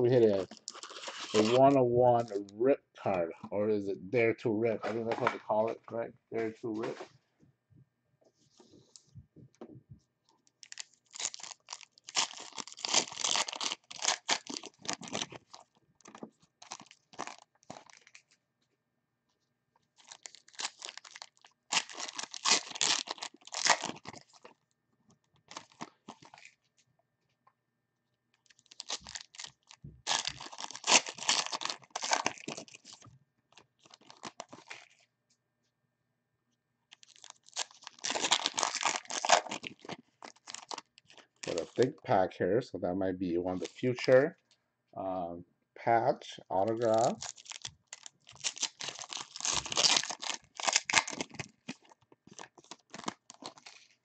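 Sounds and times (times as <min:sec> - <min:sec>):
plastic wrapping tearing and crinkling: 0:00.2 - 0:02.4, 0:10.4 - 0:18.4, 0:20.0 - 0:24.6, 0:25.3 - 0:26.6, 0:28.4 - 0:35.0, 0:36.9 - 0:41.9, 0:46.6 - 0:54.0.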